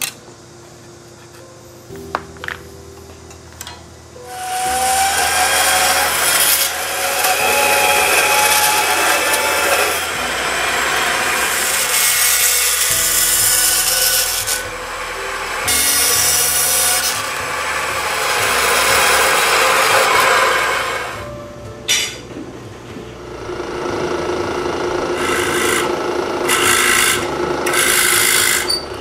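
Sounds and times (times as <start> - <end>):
bandsaw blade hissing through wood: 4.3 - 21.2, 25.2 - 28.9.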